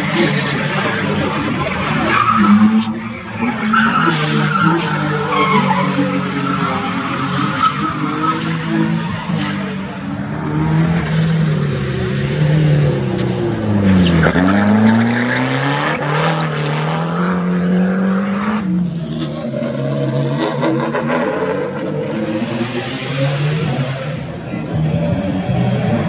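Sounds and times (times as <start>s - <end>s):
race car engines revving: 0.0s - 26.0s
tyre squeal: 2.0s - 9.4s, 11.2s - 13.0s.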